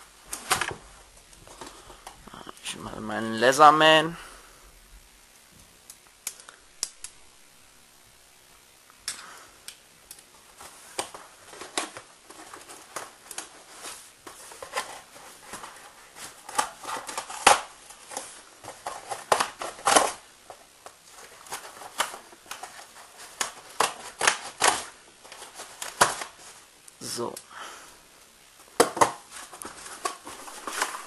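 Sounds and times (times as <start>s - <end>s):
cardboard ripping: 28.8s - 31.0s.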